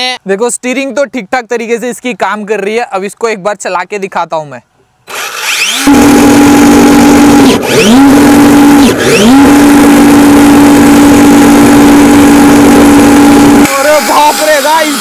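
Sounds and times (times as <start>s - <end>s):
electric motor whine: 5.1s - 15.0s.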